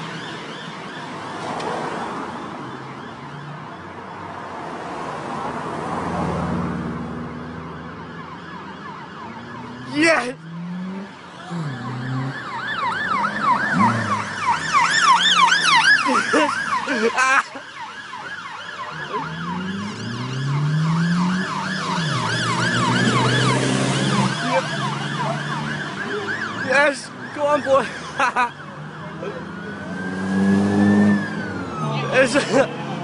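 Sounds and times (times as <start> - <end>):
police siren yelping: 0.0 - 4.3, 7.4 - 33.0
car engine revving: 9.1 - 16.9, 18.8 - 27.3, 28.8 - 33.0.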